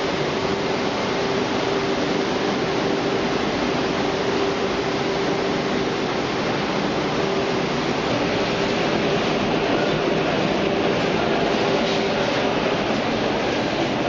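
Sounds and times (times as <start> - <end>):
constant machine hum: 0.0 - 14.0
machinery rushing noise: 0.0 - 14.0.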